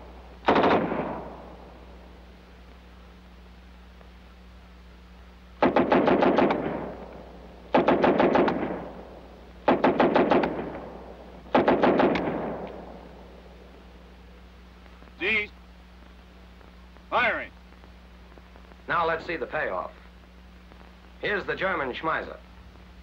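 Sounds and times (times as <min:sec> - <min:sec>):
submachine gun bursts: 0:00.4 - 0:01.2.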